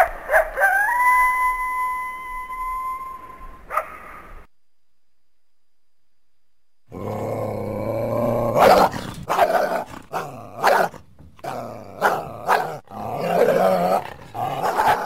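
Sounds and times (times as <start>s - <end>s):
coyote growling: 6.9s - 15.0s
coyote barking: 8.4s - 15.0s.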